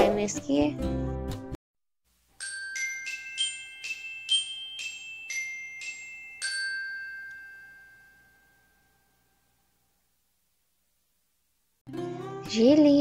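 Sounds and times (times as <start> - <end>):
glockenspiel-style jingle: 2.4 - 9.5.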